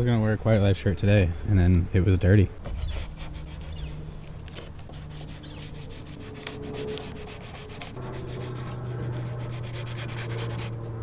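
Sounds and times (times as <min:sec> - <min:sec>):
squeegee scraping on decal: 0:02.6 - 0:10.8.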